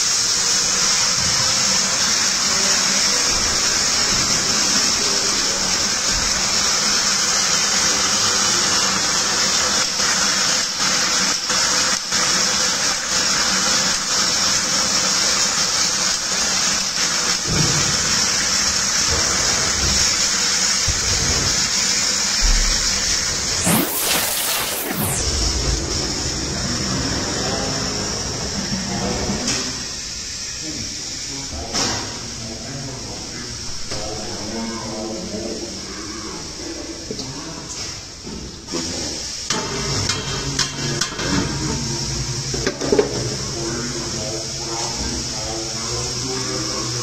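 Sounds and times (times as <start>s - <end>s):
gas burner roaring: 0.0s - 33.2s, 37.8s - 47.0s
wine sizzling and bubbling: 18.0s - 26.5s.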